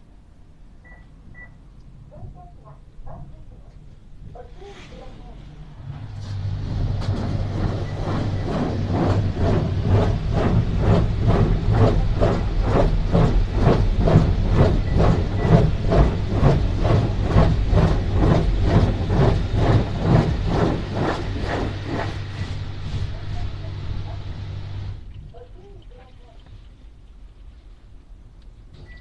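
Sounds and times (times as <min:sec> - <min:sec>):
steady low hum: 0:00.0 - 0:28.8
car wash brushes scrubbing car: 0:06.1 - 0:26.8.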